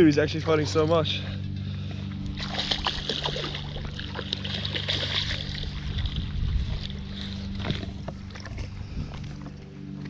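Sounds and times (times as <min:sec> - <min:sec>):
steady low hum: 0:00.0 - 0:10.0
fish splashing at water surface: 0:02.4 - 0:06.2
wind buffeting microphone: 0:05.2 - 0:09.7.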